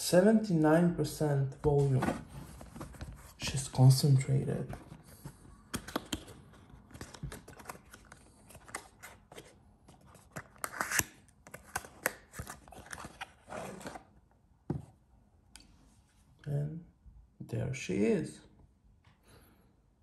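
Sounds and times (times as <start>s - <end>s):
small clicks and rustles of box: 4.8s - 14.0s.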